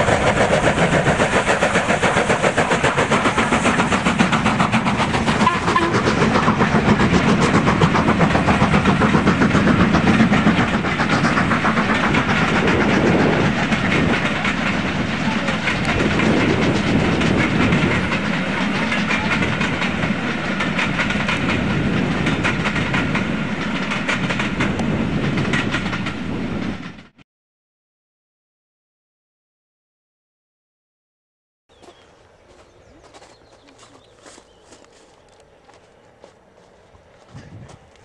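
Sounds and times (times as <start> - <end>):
train wheels clicking over rail joints: 0.0 - 26.2.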